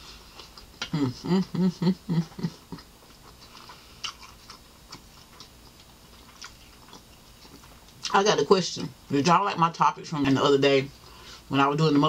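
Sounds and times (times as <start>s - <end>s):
person humming while eating: 0.8s - 2.8s.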